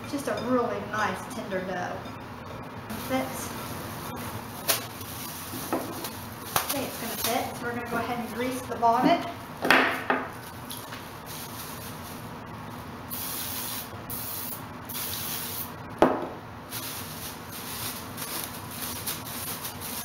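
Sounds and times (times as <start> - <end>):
oil spray bottle hissing: 13.1 - 15.7.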